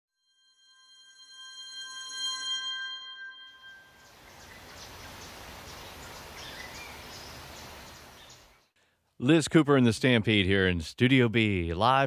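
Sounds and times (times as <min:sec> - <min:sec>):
ringing chime: 0:00.1 - 0:04.4
faint bird chirps: 0:03.6 - 0:08.8.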